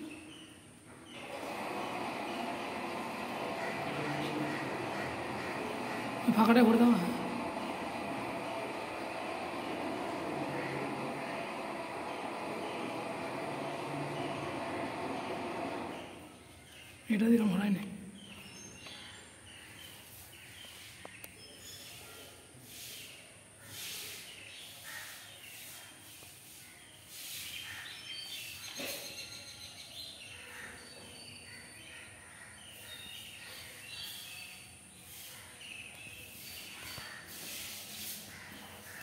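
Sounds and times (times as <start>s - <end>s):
small birds chirping: 11.9s - 39.0s
soft hissing swishes: 36.2s - 39.0s.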